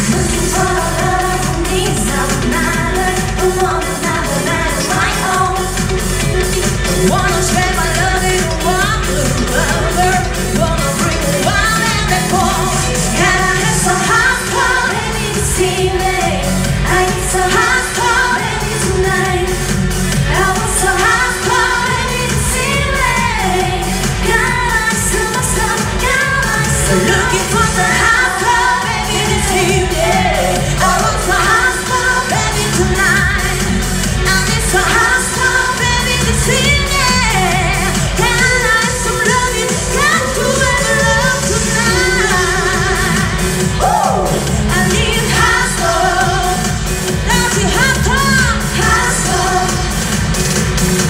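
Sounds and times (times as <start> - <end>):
dance beat and bass: 0.0 - 51.0
person singing: 20.3 - 50.1.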